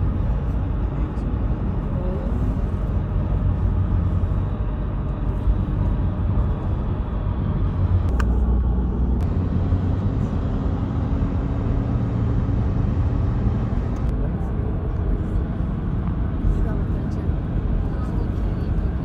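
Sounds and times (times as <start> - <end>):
vehicle driving rumble: 0.0 - 19.0.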